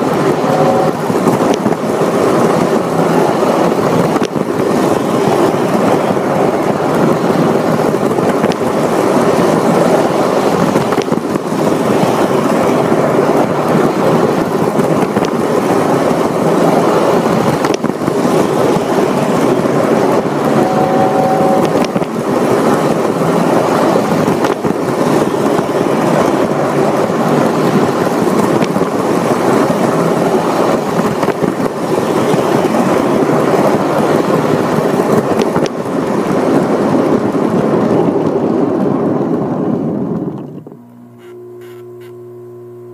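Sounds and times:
toy train rumbling on track: 0.0 - 40.3
brief steady tone: 0.4 - 1.0, 20.5 - 21.9, 40.8 - 42.9.

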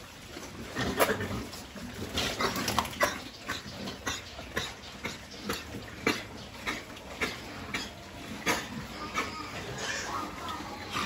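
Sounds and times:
pigs chomping: 0.4 - 11.0.

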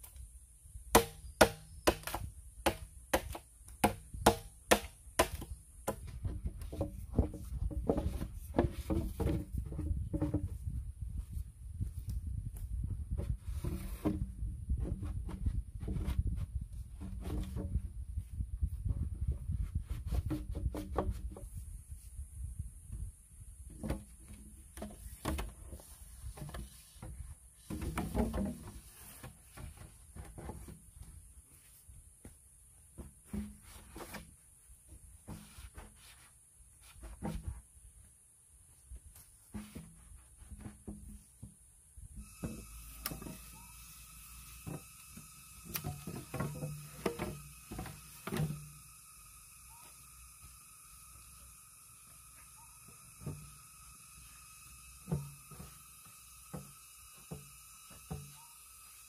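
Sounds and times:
bamboo knocking on bamboo: 0.9 - 10.6
bamboo pole knocking and scraping: 0.9 - 22.1, 23.6 - 37.7, 39.0 - 49.0, 55.0 - 58.9
bamboo pole rubbing hum: 5.2 - 23.1.

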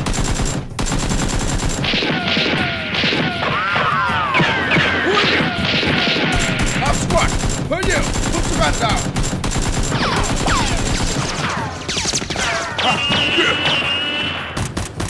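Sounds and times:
rapid automatic gunfire: 0.0 - 15.0
whining ricochets: 11.4 - 14.6.

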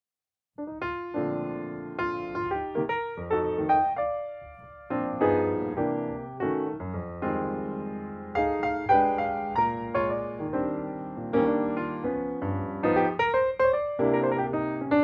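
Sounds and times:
piano music: 0.6 - 15.0.

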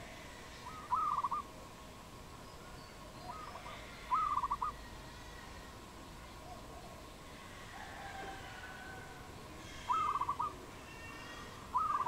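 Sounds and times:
dove cooing: 0.0 - 1.5, 3.3 - 4.8, 6.4 - 12.0.

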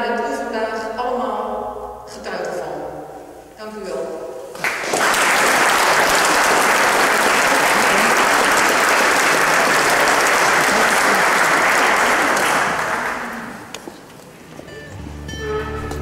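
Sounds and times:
audience applauding: 4.6 - 13.8.

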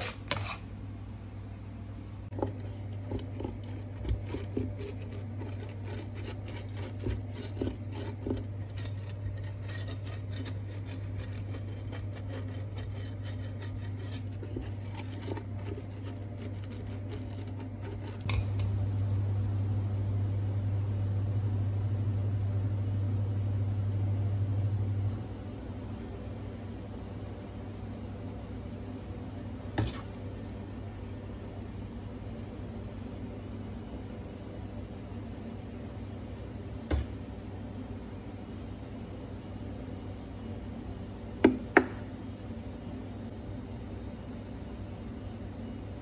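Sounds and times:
brush scraping waffle plates: 0.0 - 0.7, 2.4 - 18.3
low electrical hum: 0.0 - 46.0.

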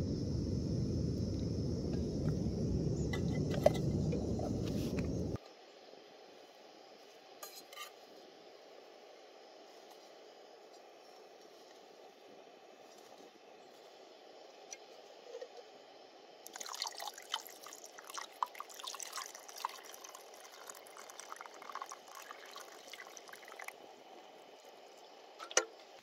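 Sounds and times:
water pouring into a pot: 16.5 - 23.8.

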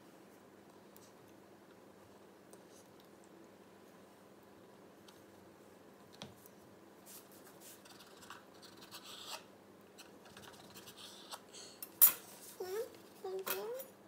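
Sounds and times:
knife scraping cutting board: 7.9 - 9.5.

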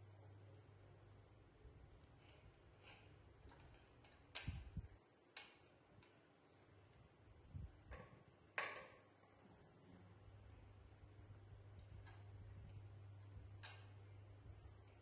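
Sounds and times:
light clicks and taps: 2.0 - 6.2, 11.7 - 14.0.

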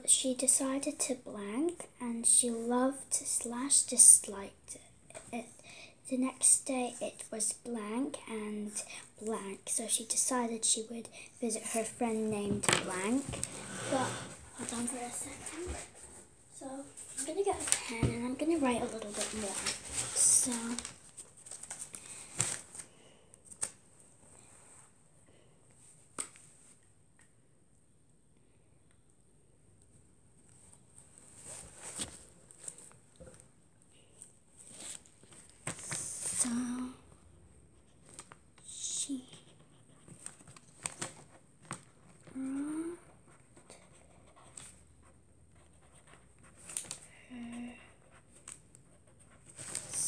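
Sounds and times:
paper rustling: 17.0 - 22.9
child murmuring: 42.3 - 43.2.

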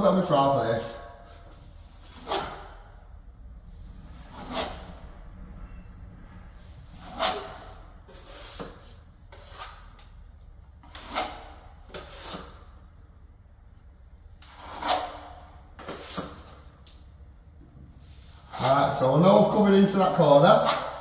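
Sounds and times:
trowel scraping wet filler: 2.0 - 2.8, 4.2 - 5.0, 6.9 - 10.2, 10.8 - 12.8, 14.4 - 16.7, 18.1 - 21.0.

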